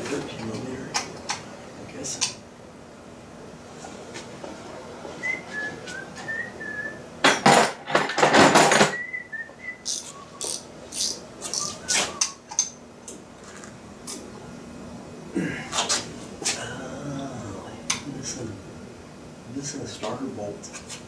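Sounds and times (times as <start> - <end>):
man whistling a tune: 5.2 - 7.0, 8.9 - 10.6, 11.5 - 12.4.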